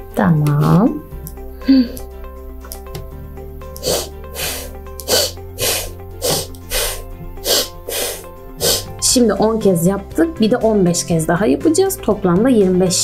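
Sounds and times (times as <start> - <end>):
background music: 0.0 - 13.0
person exhaling sharply through nose: 3.8 - 9.0.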